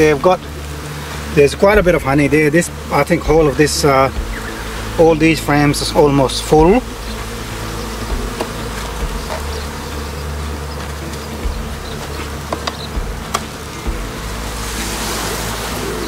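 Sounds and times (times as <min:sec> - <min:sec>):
bees buzzing: 0:00.0 - 0:16.0
hive tool clicks: 0:08.3 - 0:09.6, 0:11.1 - 0:13.6.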